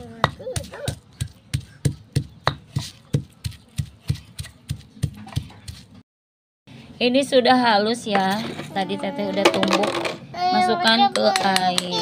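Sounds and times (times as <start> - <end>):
stone pestle pounding in mortar: 0.0 - 5.8.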